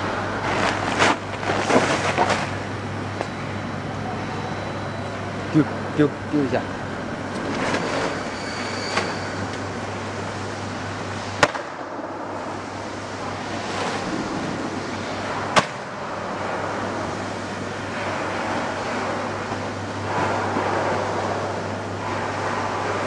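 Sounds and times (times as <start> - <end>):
packaging machinery humming: 0.0 - 23.0.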